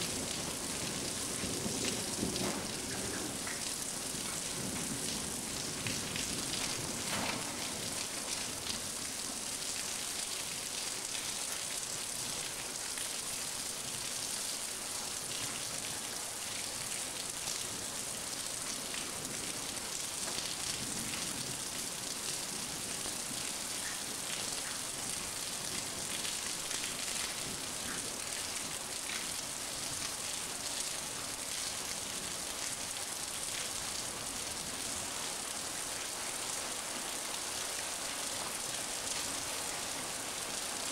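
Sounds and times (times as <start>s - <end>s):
steady rain falling: 0.0s - 40.9s.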